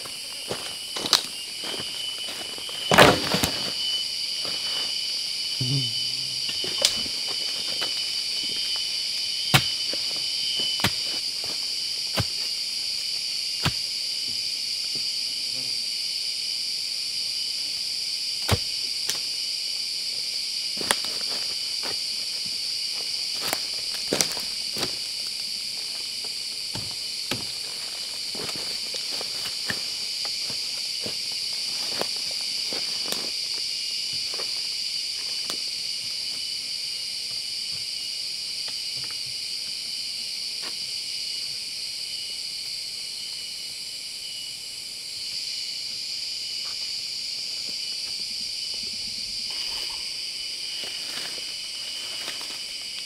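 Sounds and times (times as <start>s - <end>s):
footsteps in leaf litter: 0.0s - 3.8s
insect chorus: 0.0s - 53.0s.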